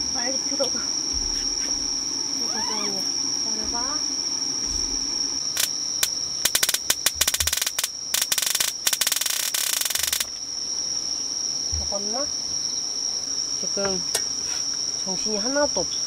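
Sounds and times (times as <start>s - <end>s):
high insect trill: 0.0s - 16.0s
electric fly swatter zapping: 4.8s - 10.4s.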